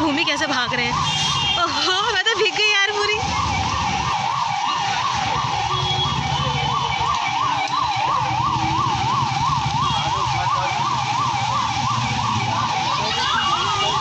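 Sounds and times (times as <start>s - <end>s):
street noise: 0.0s - 14.0s
electronic siren warbling: 2.9s - 14.0s.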